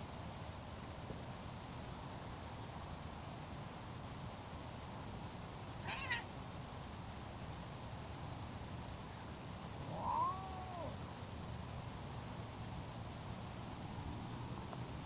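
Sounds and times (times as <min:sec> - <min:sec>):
cats meowing: 0:05.8 - 0:06.3, 0:09.8 - 0:11.0.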